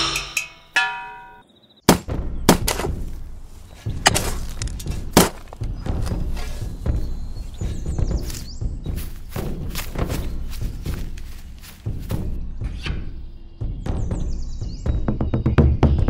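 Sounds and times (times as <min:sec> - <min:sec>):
steady low music bed: 0:00.0 - 0:16.0
sharp heavy thunks: 0:01.9 - 0:03.2, 0:03.9 - 0:06.4.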